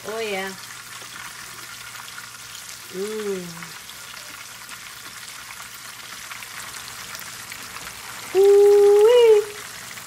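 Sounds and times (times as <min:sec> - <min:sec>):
chicken sizzling in oil: 0:00.0 - 0:10.0
small oil crackles: 0:00.0 - 0:10.0.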